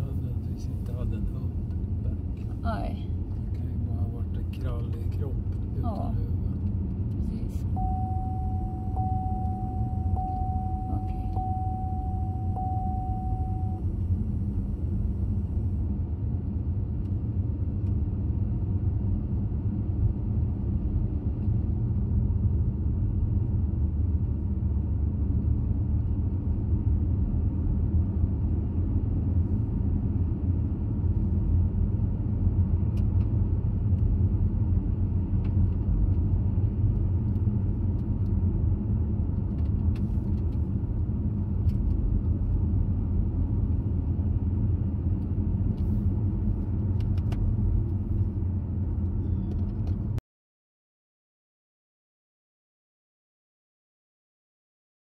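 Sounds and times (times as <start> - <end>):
car road and engine rumble: 0.0 - 50.2
steady high tone: 7.8 - 13.8.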